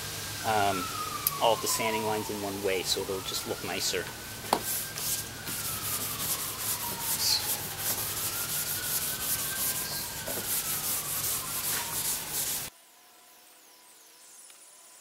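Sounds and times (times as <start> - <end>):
sandpaper rubbing by hand: 4.5 - 12.7.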